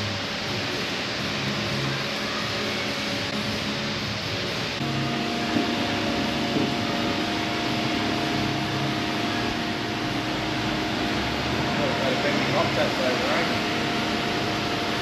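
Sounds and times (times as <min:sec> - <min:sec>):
motor hum: 0:00.0 - 0:15.0
workshop machinery hum: 0:00.0 - 0:15.0.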